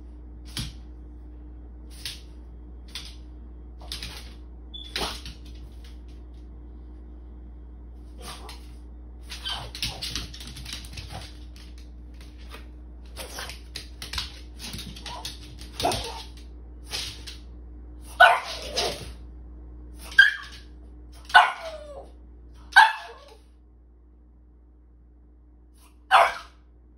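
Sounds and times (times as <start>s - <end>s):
dog claws clicking on tile floor: 1.9s - 6.4s, 8.2s - 19.2s
dog barking: 18.1s - 18.9s, 21.3s - 23.4s, 26.1s - 26.6s.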